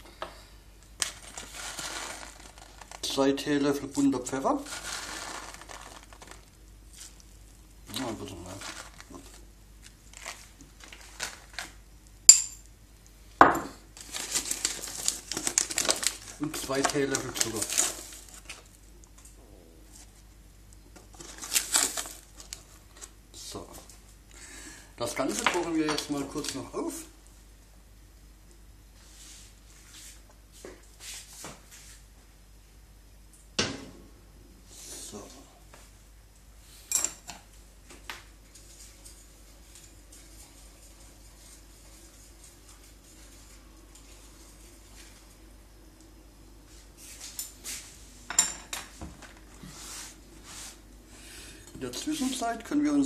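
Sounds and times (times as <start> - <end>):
packet rustling and crinkling: 1.0 - 7.2, 7.9 - 11.8, 14.0 - 18.8, 21.0 - 23.2
pot scraping and shuffling: 1.0 - 7.3, 7.9 - 11.8, 14.0 - 18.8, 21.0 - 23.9, 38.4 - 45.4, 48.8 - 50.8.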